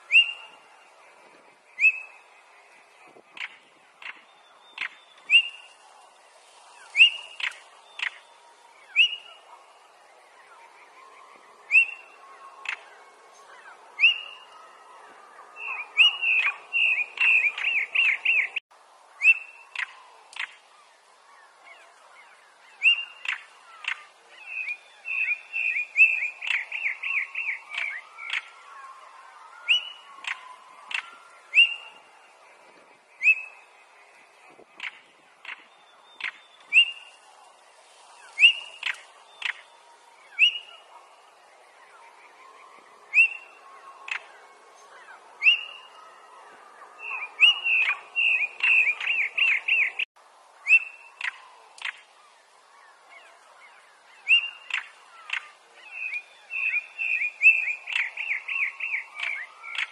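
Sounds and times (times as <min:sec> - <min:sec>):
bird whistled notes: 0:08.9 - 0:09.4, 0:50.7 - 0:51.4
bird ticking clicks: 0:51.2 - 0:52.0.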